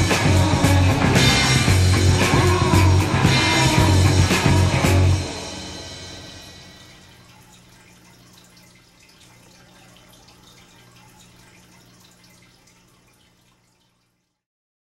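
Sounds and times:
steady low hum: 0.0 - 11.9
water dripping and trickling: 6.1 - 14.4.

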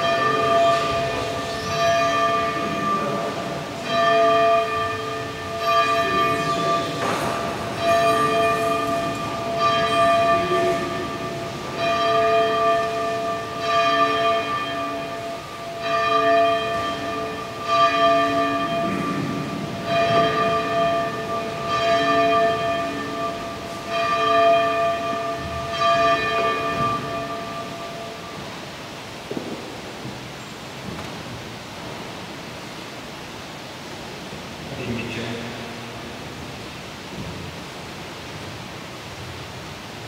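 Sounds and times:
church bells ringing: 0.0 - 29.5.

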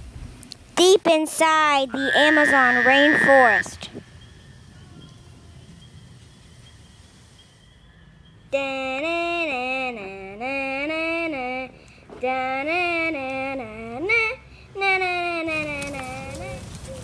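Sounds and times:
faint hiss: 0.0 - 13.8
person singing wordless tune: 8.5 - 16.6.

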